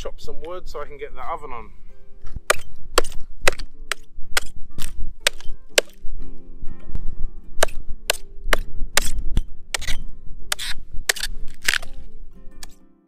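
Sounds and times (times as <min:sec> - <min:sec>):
hatchet chopping log: 0:02.3 - 0:06.0, 0:07.6 - 0:12.0.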